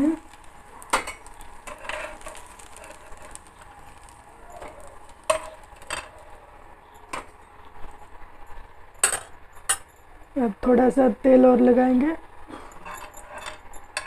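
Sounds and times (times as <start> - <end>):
metal spatula scraping frying pan: 0.3 - 6.2, 12.7 - 14.0.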